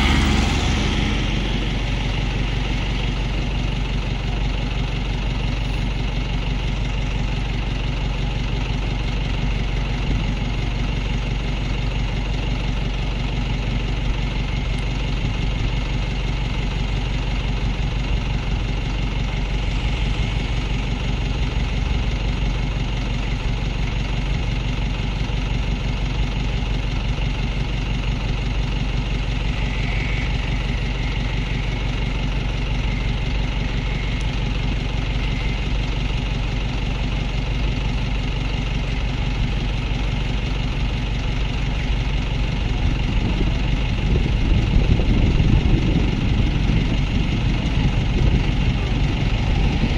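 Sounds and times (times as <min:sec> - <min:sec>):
heavy engine idling: 0:00.0 - 0:49.9.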